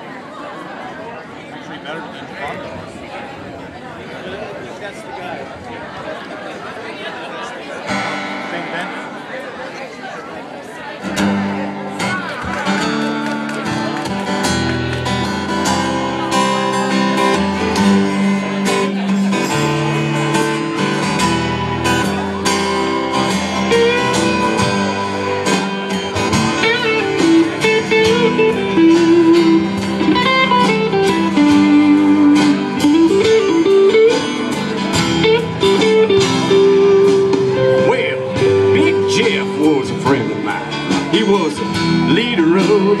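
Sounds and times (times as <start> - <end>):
strummed acoustic guitars: 7.8 - 9.3, 11.0 - 43.0
bending lead guitar melody: 7.9 - 9.4, 11.0 - 43.0
bass: 11.1 - 43.0
drums steady beat: 15.7 - 43.0.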